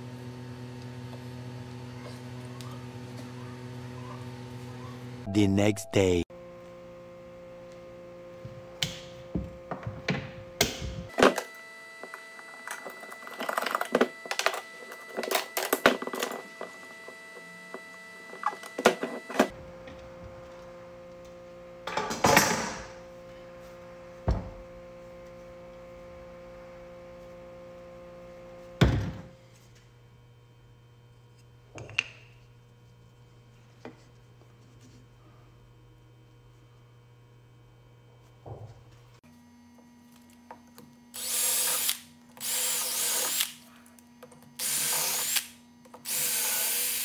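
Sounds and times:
steady hum: 0.0 - 45.9.

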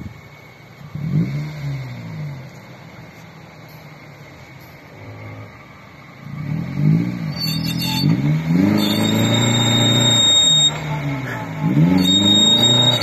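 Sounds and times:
car engine revving: 0.8 - 13.0
thin high whistle: 7.3 - 13.0.

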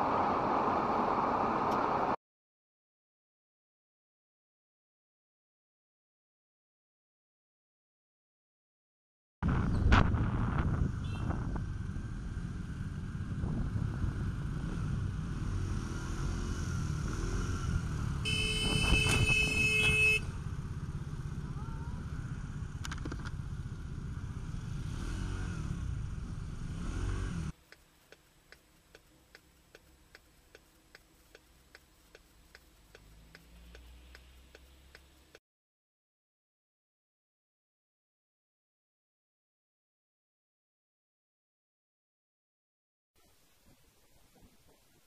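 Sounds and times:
road noise: 0.0 - 2.2, 9.4 - 35.4
horn sounding: 18.2 - 20.4
regular ticking: 27.6 - 35.4.

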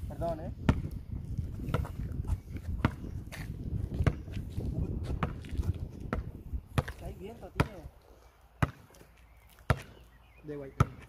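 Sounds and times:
basketball bouncing on hard court: 0.6 - 0.9, 1.6 - 2.1, 2.7 - 4.4, 5.0 - 7.8, 8.6 - 8.9, 9.7 - 9.9, 10.8 - 11.0.

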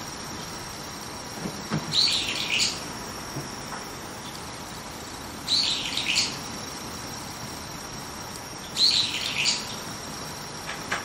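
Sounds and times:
bird calling: 1.9 - 2.8, 5.5 - 6.4, 8.6 - 9.8.

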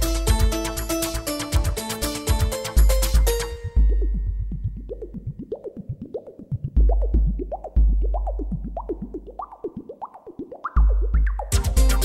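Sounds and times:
deep sub-bass notes: 2.4 - 5.6, 6.7 - 9.7, 10.8 - 12.0.

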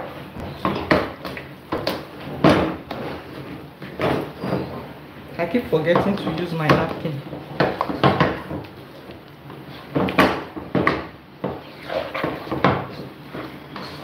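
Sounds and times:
mash squelching: 5.6 - 14.0.

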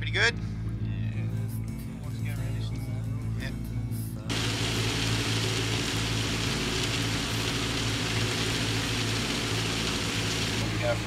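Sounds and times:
boat engine droning: 4.3 - 11.0
heavy rain on a boat: 4.3 - 11.0.

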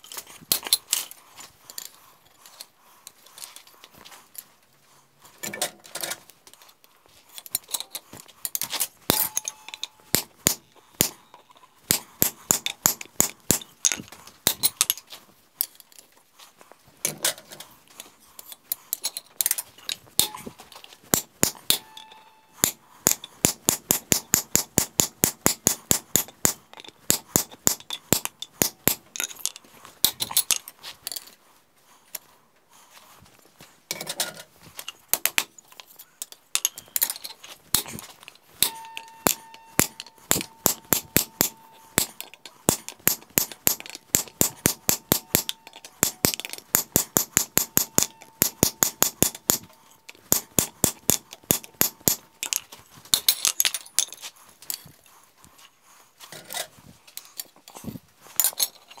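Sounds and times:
hammer striking chisel on hot steel: 9.1 - 11.2, 11.9 - 13.7, 21.1 - 29.1, 38.6 - 52.3.

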